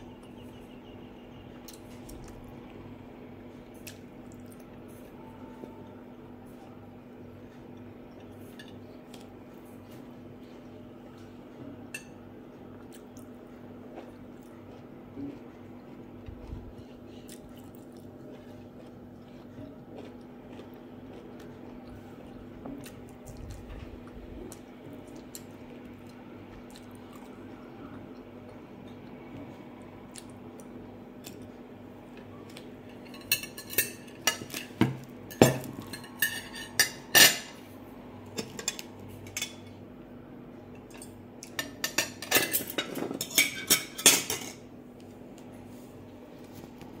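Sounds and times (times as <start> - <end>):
quiet chewing: 1.5 - 34.8
forks clinking on glass plates: 32.9 - 37.6, 40.9 - 44.6.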